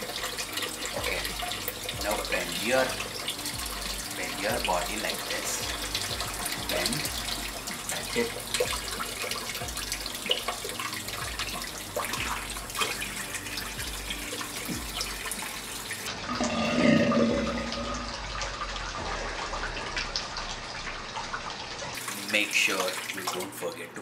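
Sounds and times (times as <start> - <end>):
tap running into sink: 13.8 - 15.6.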